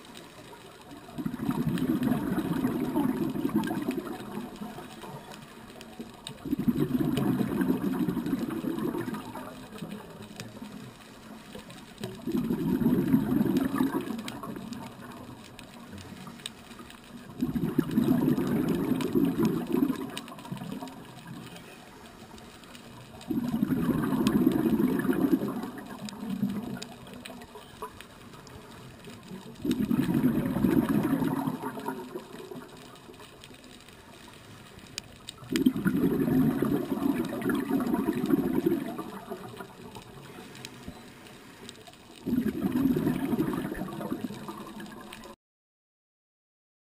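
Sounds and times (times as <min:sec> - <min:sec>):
exhaled bubbles rumbling: 0:00.0 - 0:45.4.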